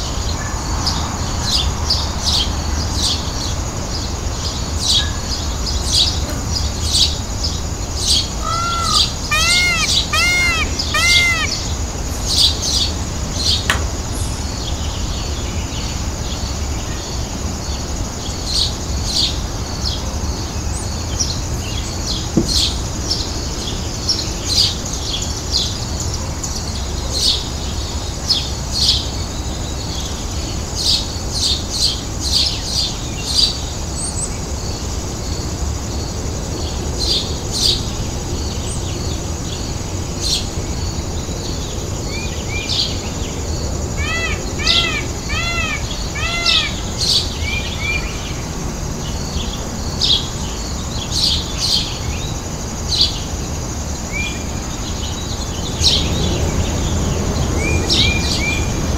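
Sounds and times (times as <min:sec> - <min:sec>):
birds chirping: 0:04.0 - 0:16.5, 0:42.7 - 0:48.5.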